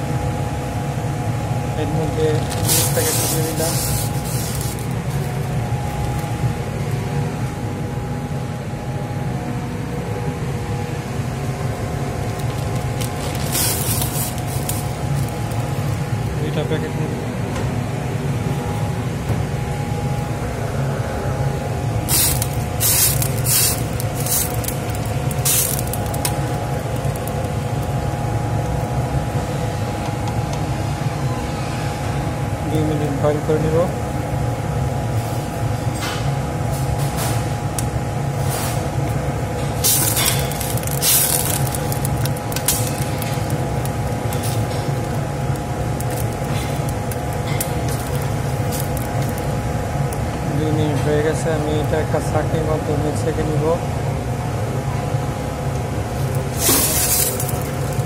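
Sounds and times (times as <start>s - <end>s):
water boiling in a pot: 0.0s - 7.6s, 10.7s - 16.4s, 21.6s - 30.8s, 36.4s - 52.4s, 54.1s - 58.0s
hissing splashes in boiling water: 13.5s - 14.9s, 22.1s - 26.3s, 39.8s - 45.0s, 56.5s - 57.9s.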